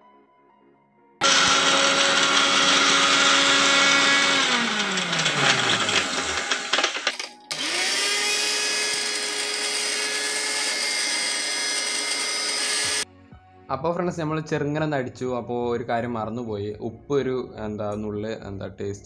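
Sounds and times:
mixer grinder motor blending: 0:01.2 - 0:13.0.

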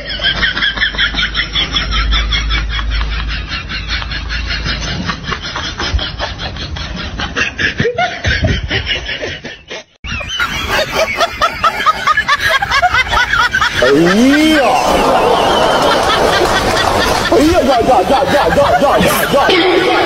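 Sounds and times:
higher-pitched laughter: 0:00.0 - 0:20.0
people snickering: 0:00.0 - 0:20.0.

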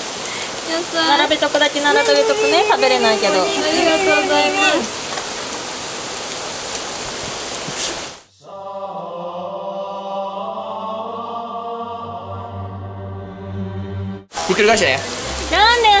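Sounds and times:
meat sizzling on a grill: 0:00.0 - 0:08.3, 0:14.3 - 0:16.0
held chord of background music: 0:08.4 - 0:15.4.

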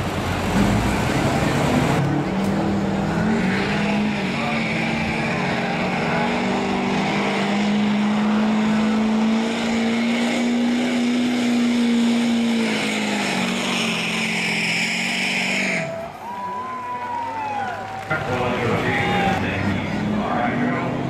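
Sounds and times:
diesel truck engine at high revs: 0:00.0 - 0:21.0.

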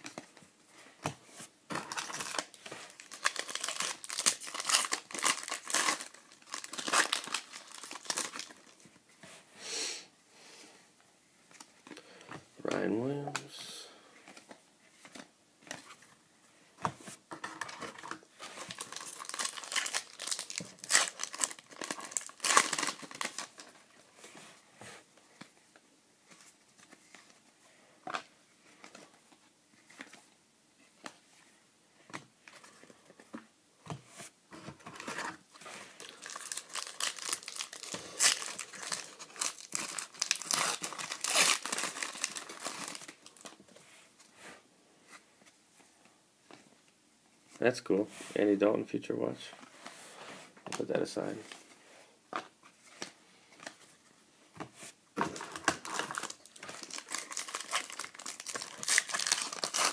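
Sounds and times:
foil wrappers crinkling and tearing: 0:01.8 - 0:08.8, 0:18.7 - 0:23.8, 0:36.0 - 0:43.6, 0:55.4 - 0:59.9.

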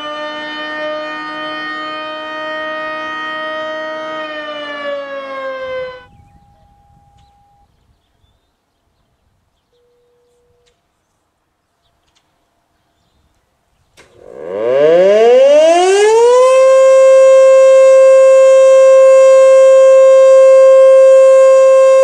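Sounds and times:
warning siren winding down: 0:00.0 - 0:07.7, 0:14.2 - 0:22.0
faint short steady tones: 0:06.2 - 0:07.7.

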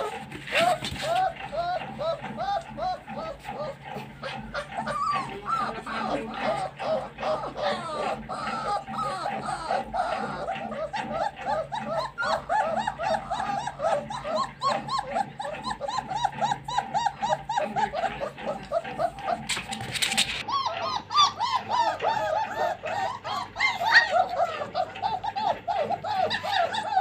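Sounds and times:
puppies whining and yelping: 0:00.0 - 0:27.0.

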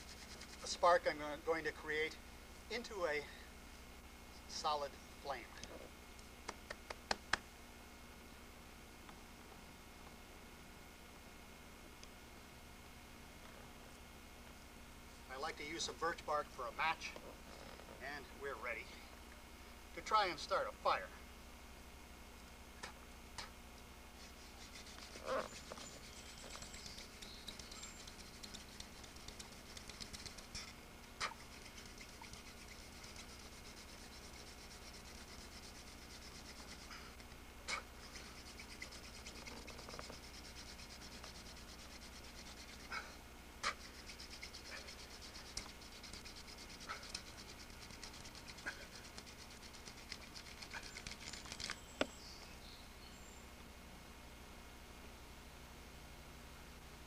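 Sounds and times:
wooden spindle scratchy rubbing: 0:00.0 - 0:01.4, 0:24.1 - 0:51.8.

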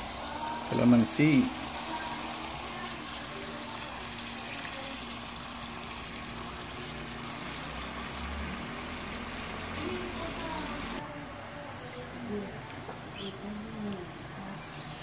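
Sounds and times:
sauce sizzling in a wok: 0:00.0 - 0:11.0.

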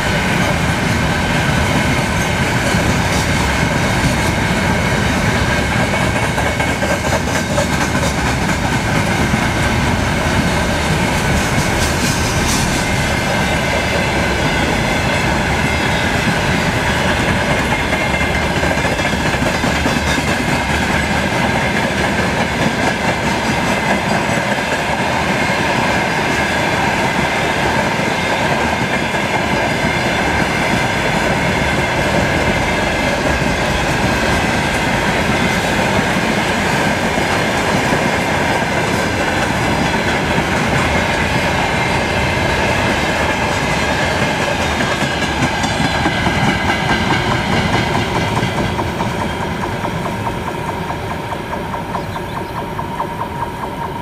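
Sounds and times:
freight train wheels rolling on rail: 0:00.0 - 0:54.0.

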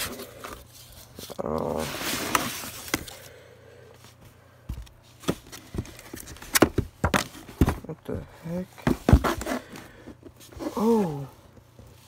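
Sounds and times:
knocks and taps in cardboard box: 0:06.5 - 0:07.9.

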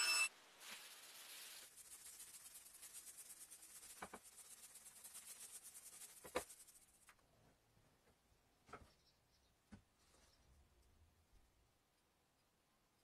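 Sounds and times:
paint roller swishing: 0:00.6 - 0:07.1.

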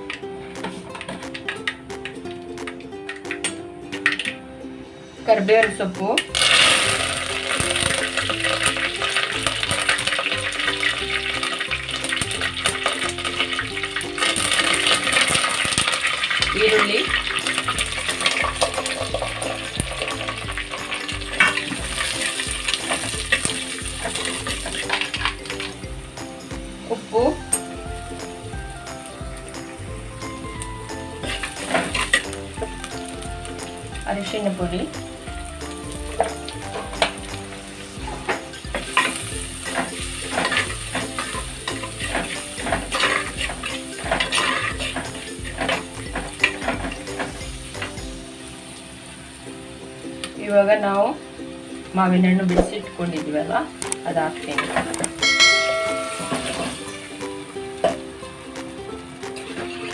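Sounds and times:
onion sizzling in oil: 0:00.0 - 0:59.9.

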